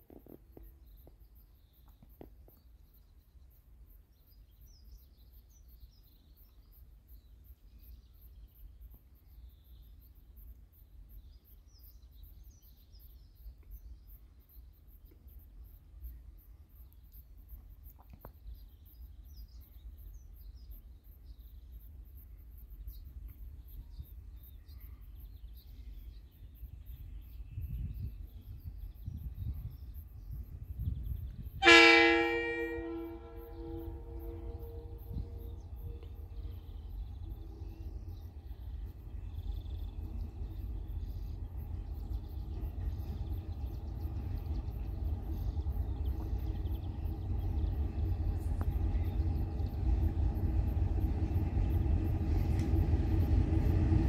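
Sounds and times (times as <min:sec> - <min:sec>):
low steady rumble: 0:26.8 - 0:54.0.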